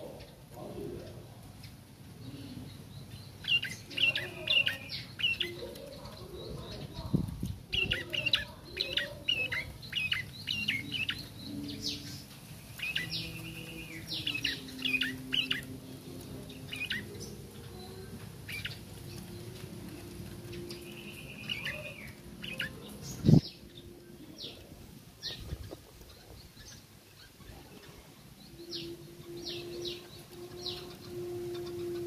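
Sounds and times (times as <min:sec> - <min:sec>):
young bird twittering: 0:02.4 - 0:32.0.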